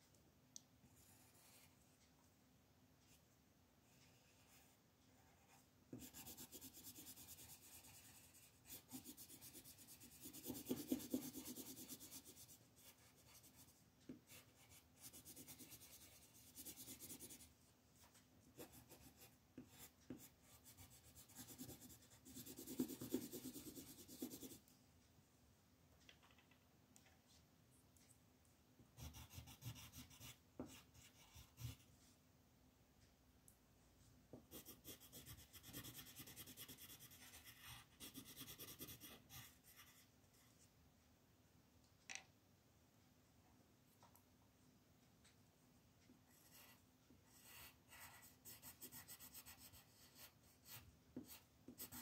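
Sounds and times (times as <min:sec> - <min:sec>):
pencil scratching on paper: 0:01.0 - 0:01.8, 0:04.0 - 0:17.5, 0:18.1 - 0:24.6, 0:29.0 - 0:31.9, 0:34.4 - 0:40.5, 0:46.3 - 0:52.0.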